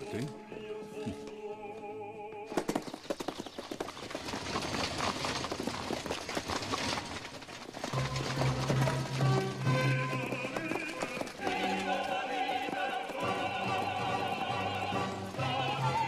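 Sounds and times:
music: 0.0s - 2.4s, 8.0s - 16.0s
galloping hoofbeats on dirt: 2.4s - 16.0s.

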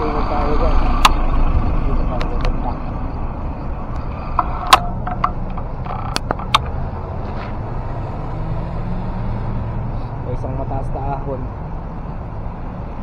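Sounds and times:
traffic rumble: 0.0s - 13.0s
sharp clicks or knocks: 4.0s - 6.8s.

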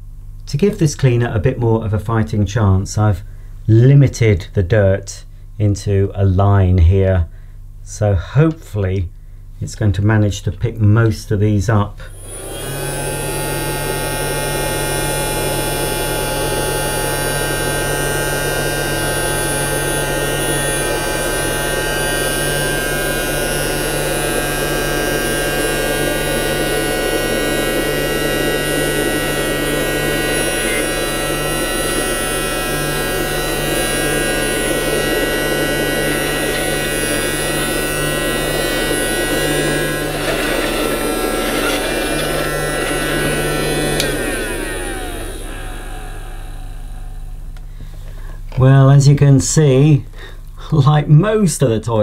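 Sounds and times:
toy vacuum cleaner whining hum: 12.1s - 48.3s.

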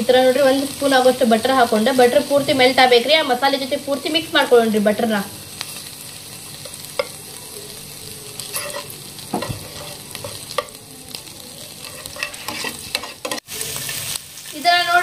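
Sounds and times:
butter sizzling in pan: 0.0s - 15.0s
metal spatula scraping pan: 8.5s - 10.8s, 11.8s - 13.5s.

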